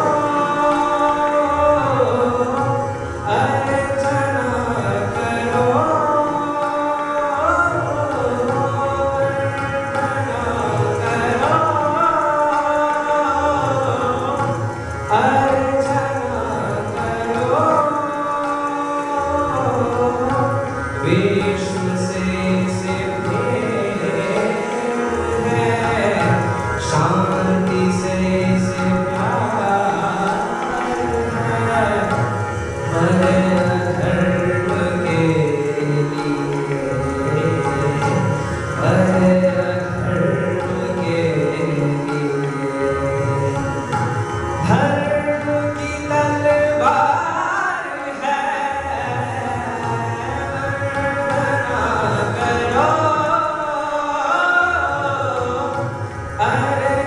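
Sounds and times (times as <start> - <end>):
instrumental accompaniment: 0.0 - 57.0.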